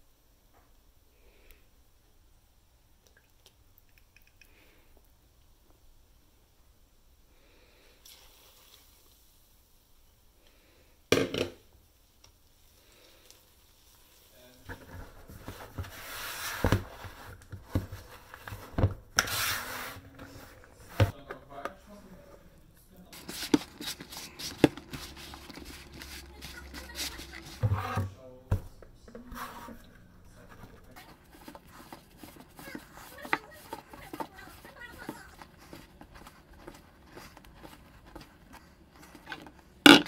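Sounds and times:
hands kneading dough: 12.0 - 40.0.

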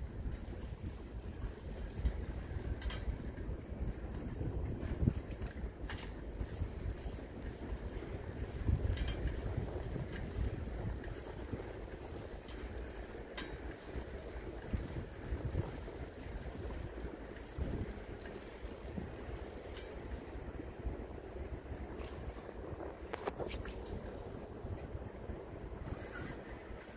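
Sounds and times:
wind on microphone: 0.0 - 11.8, 20.6 - 26.9
bicycle tyres rolling: 0.0 - 26.9
light bike clicks: 0.0 - 26.9.

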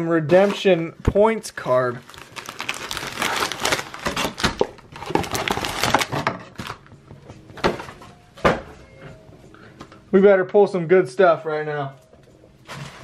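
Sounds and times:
cellophane wrapping crinkling: 1.7 - 6.9.

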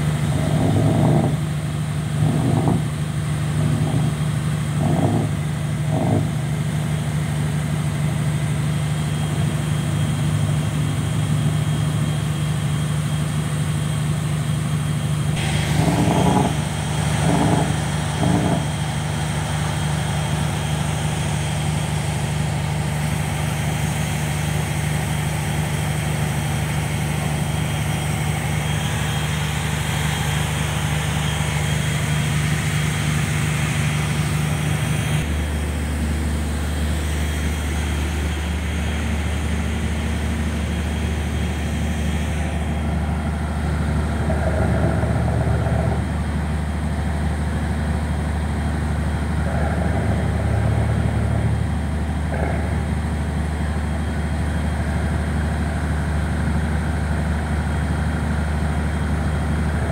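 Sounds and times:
boat diesel engine running: 0.0 - 59.9.

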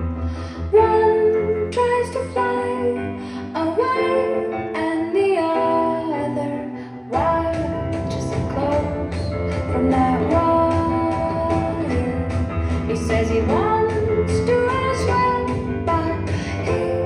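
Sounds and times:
guitar: 0.0 - 17.0
woman singing: 0.6 - 17.0
steady bass line: 7.1 - 17.0.

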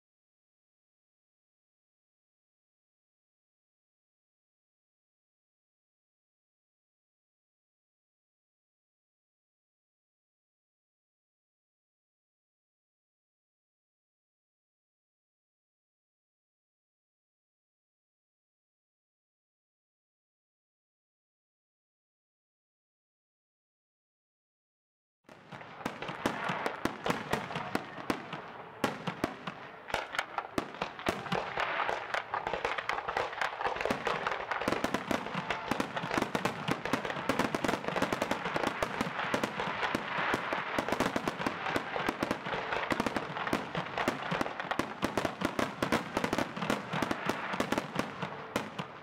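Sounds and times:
fireworks bangs and crackling: 25.3 - 49.0.

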